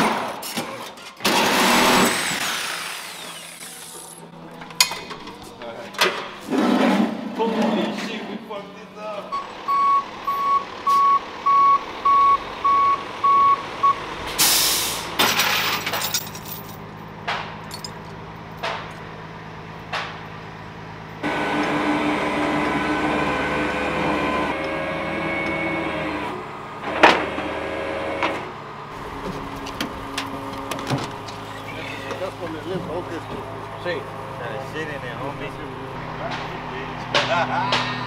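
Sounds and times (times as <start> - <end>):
truck engine hum with whine: 0.0 - 6.4, 8.6 - 38.0
metal clanks: 4.5 - 7.1
truck reversing beeper: 9.2 - 15.2, 21.2 - 27.0
air brake hiss: 14.3 - 15.1.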